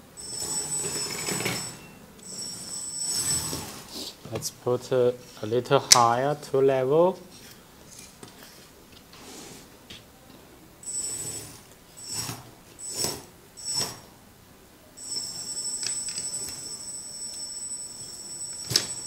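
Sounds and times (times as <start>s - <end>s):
electric motors whining: 0.1s - 4.0s, 10.8s - 14.1s.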